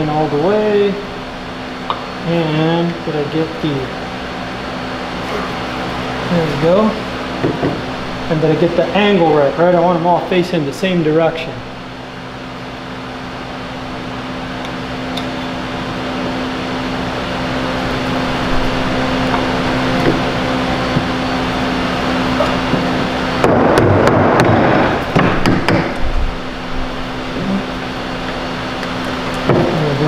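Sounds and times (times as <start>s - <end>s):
steady mechanical hum: 0.0s - 30.0s.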